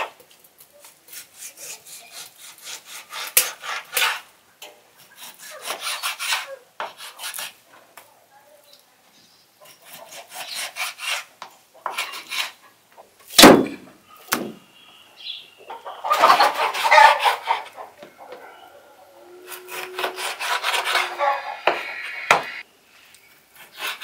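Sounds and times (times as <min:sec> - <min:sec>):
loud thump: 0:13.4 - 0:13.8.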